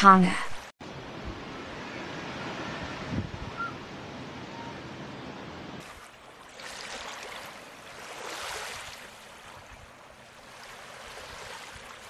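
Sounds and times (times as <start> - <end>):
rushing water: 5.8 - 12.0.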